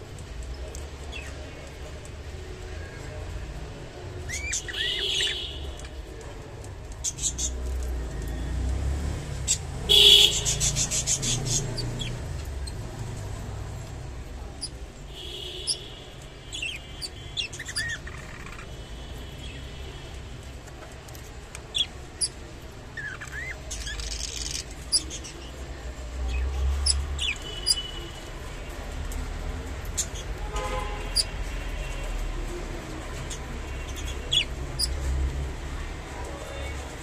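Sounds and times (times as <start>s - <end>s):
budgerigars chirping: 4.3s - 5.9s, 9.5s - 12.8s, 15.5s - 15.9s, 16.5s - 18.7s, 23.0s - 25.5s, 33.3s - 35.0s.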